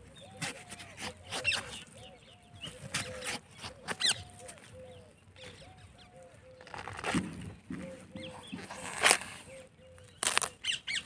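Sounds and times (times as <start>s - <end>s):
knife cracking watermelon rind: 10.2s - 10.6s.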